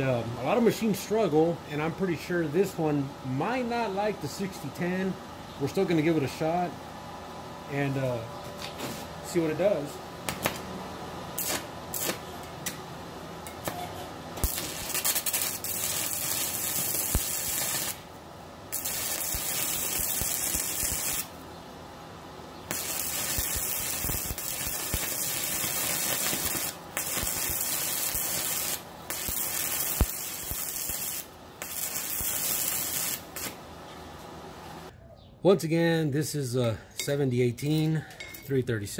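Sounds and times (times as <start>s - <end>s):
sizzling welding arc: 11.4s - 12.4s, 13.6s - 18.1s, 18.7s - 21.4s, 22.7s - 33.6s.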